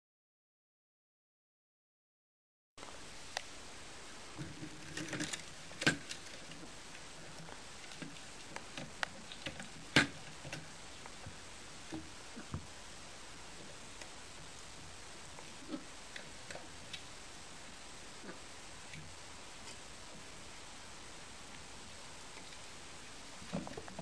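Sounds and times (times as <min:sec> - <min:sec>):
steady hiss: 0:02.8 - 0:24.0.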